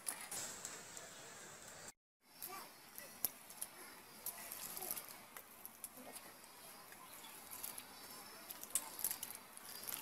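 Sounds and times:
bananas squishing: 3.0s - 10.0s.

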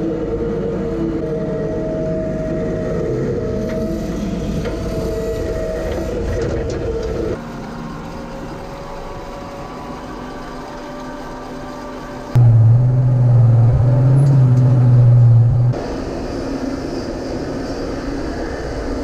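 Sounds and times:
diesel loader engine running: 0.0s - 18.6s
tractor engine running: 3.3s - 16.0s.

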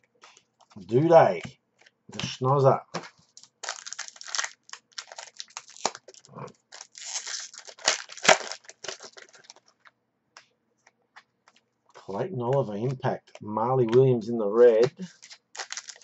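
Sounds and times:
card pack wrapper crinkling: 3.3s - 9.7s, 15.0s - 16.0s.

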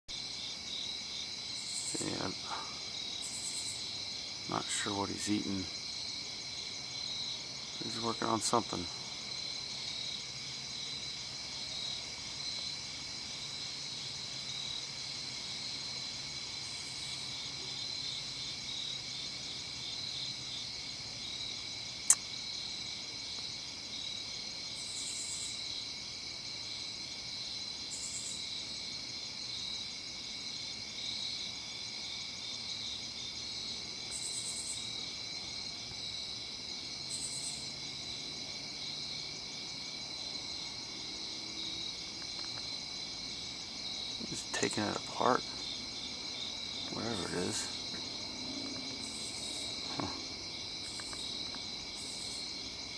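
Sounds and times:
insects trilling: 0.1s - 52.9s
high-pitched insect calling: 0.2s - 6.3s, 15.7s - 22.8s, 24.7s - 25.8s, 27.8s - 28.6s, 34.0s - 35.2s, 37.1s - 38.2s, 40.2s - 52.9s.

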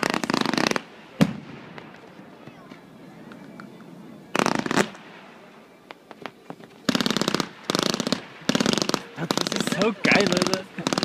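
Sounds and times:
fireworks crackling: 0.0s - 11.0s.

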